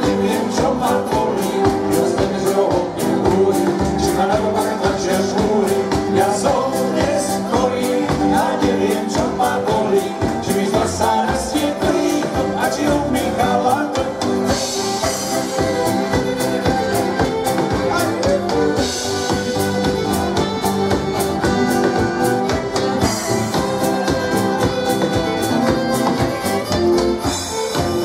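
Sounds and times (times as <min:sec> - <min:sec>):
live folk band playing: 0:00.0 - 0:28.0
steady drum beat: 0:00.0 - 0:28.0.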